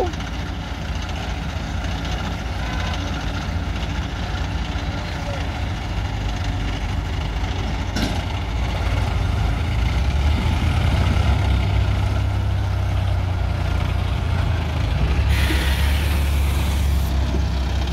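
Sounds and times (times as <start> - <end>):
tractor diesel engine under load: 0.0 - 17.9
burst of hiss: 15.3 - 17.2.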